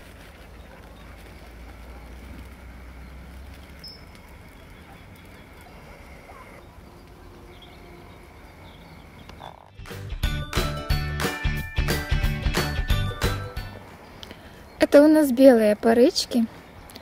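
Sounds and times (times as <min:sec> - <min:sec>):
faint bird chirps: 0:03.8 - 0:09.7.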